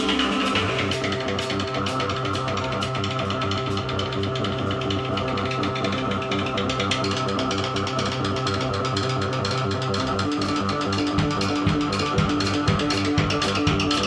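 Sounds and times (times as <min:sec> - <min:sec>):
rapid dense drumming: 0:10.3 - 0:14.0.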